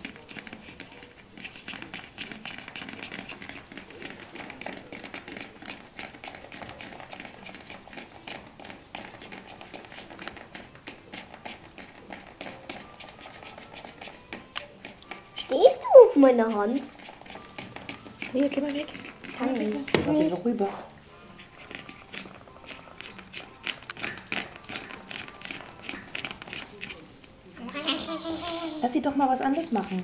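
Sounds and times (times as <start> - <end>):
newspaper rustling under puppies: 0.0 - 30.0.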